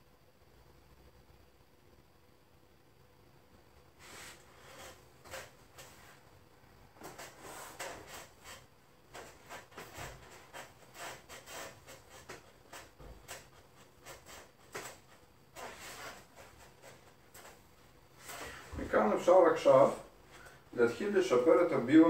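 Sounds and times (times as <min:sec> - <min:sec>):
rustling of hands and clothing: 0:04.0 - 0:21.8.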